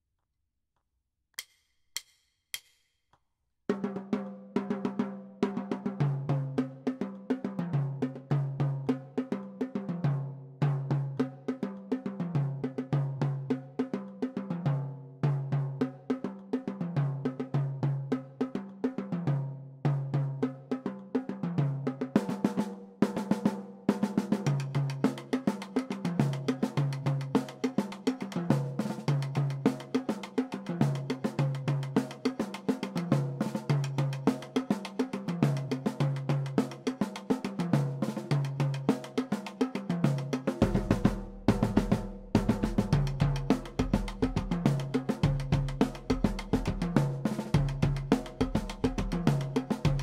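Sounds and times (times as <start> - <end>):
drumstick clicks: 1.4 - 3.2
snare drum strokes: 22.2 - 50.0
bass drums: 40.6 - 50.0.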